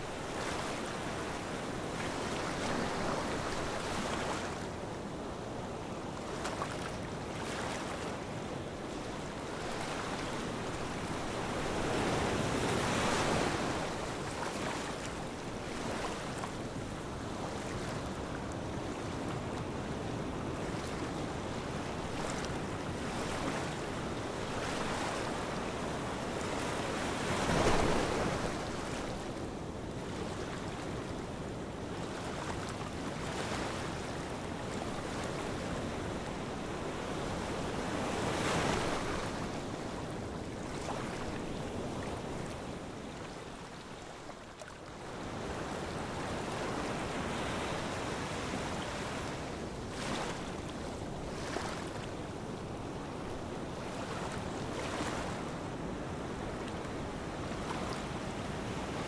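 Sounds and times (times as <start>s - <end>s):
waves washing onto a beach: 0.0s - 59.0s.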